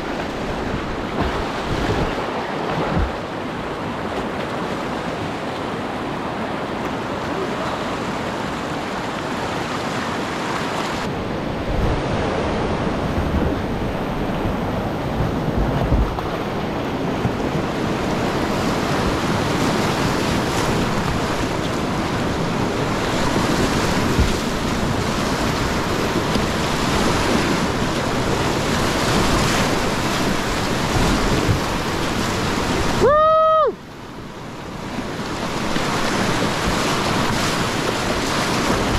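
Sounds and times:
wind buffeting microphone: 0:00.0 - 0:04.8, 0:10.9 - 0:33.0
whitewater rushing and splashing: 0:00.0 - 0:38.9.

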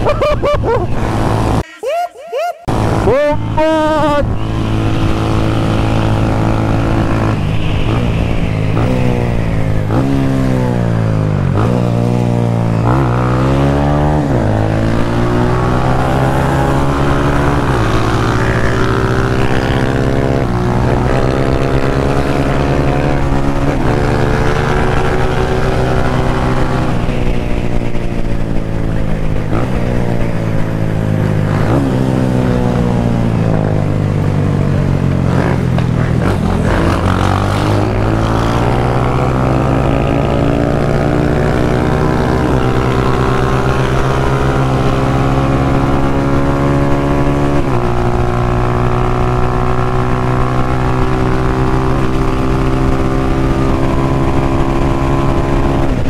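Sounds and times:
rushing air: 0:02.7 - 0:12.8
motorcycle engine shifting gears: 0:02.7 - 0:56.0.

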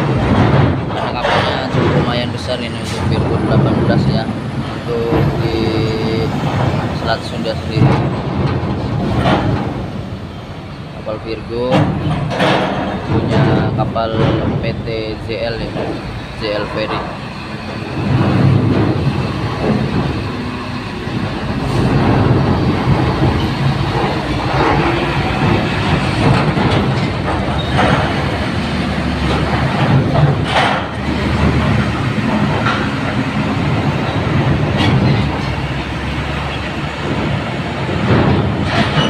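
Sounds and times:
loud metallic clanks: 0:00.0 - 0:39.0
truck engines rumbling: 0:00.0 - 0:39.0.

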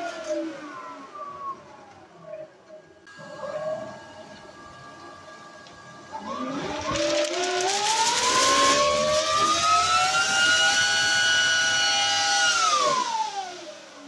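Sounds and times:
electric ducted fan whine: 0:00.0 - 0:14.0
paper fluttering in airflow: 0:06.1 - 0:13.6
paper tearing: 0:06.4 - 0:11.5.

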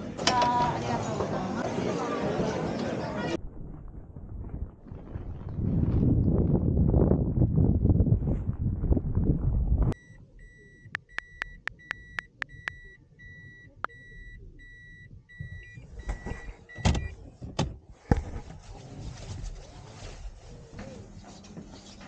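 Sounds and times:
car reverse warning beeps: 0:10.0 - 0:17.2
sharp clicks: 0:10.9 - 0:12.9.

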